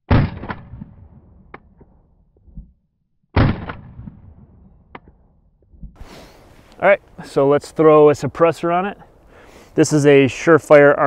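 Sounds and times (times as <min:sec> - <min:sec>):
rifle shots with echo: 0:00.1 - 0:02.0, 0:03.4 - 0:05.3.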